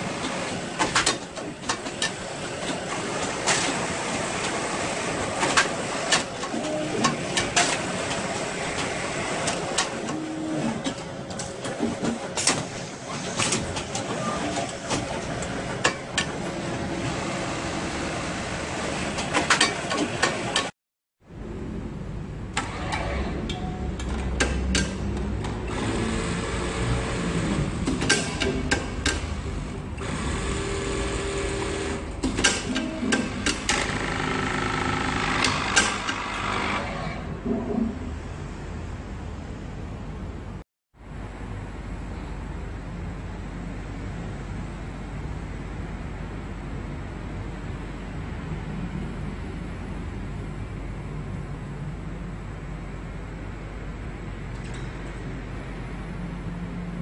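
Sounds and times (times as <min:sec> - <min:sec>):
workshop machinery hum: 0:00.0 - 0:57.0
sewing machine humming: 0:25.6 - 0:37.3
pneumatic clamps clacking: 0:32.2 - 0:34.0
machine humming: 0:32.8 - 0:37.4.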